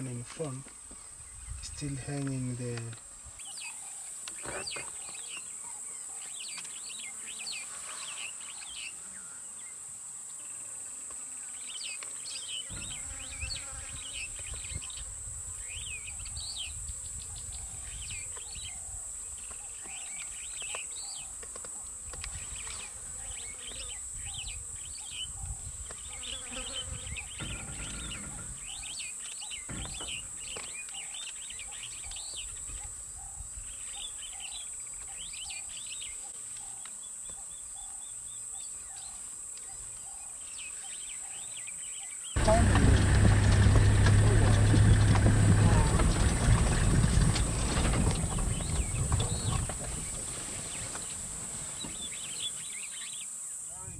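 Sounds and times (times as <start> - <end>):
insects droning: 0.0 - 53.9
low rumble: 42.4 - 49.8.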